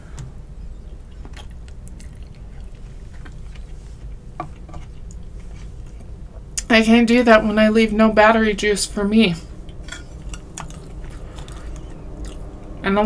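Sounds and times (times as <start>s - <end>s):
faint low hum: 0.0s - 13.0s
chewing mouth sounds: 1.0s - 6.7s, 9.6s - 12.8s.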